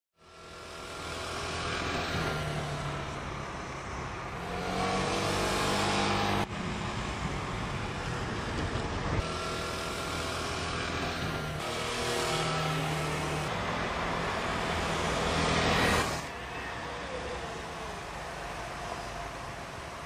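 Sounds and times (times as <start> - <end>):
vehicle engine running: 0.2 - 20.0.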